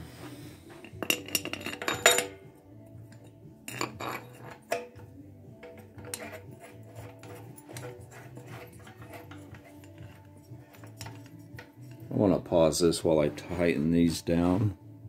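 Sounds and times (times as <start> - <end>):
metal bolts clinking: 0.8 - 2.5, 3.1 - 12.1.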